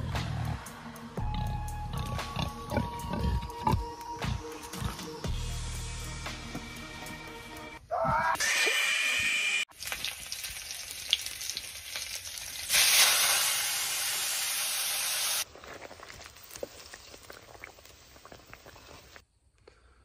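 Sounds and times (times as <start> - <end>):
meat sizzling in a wok: 9.7 - 15.5
water hissing in hot wok: 9.8 - 15.5.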